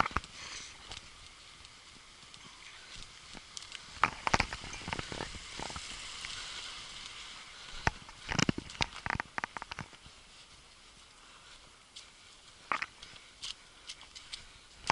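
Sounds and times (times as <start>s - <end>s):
running footsteps on forest trail: 0.0s - 14.9s
steady hiss: 0.0s - 14.9s.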